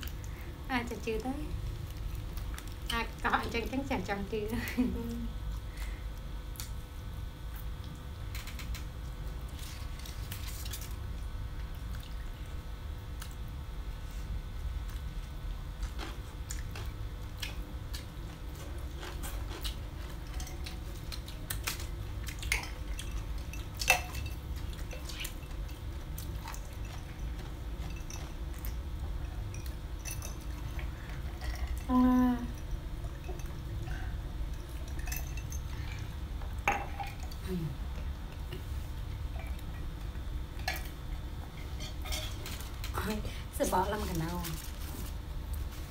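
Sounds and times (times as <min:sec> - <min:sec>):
steady low hum: 0:00.0 - 0:45.9
bowls and utensils clicking: 0:34.5 - 0:35.6.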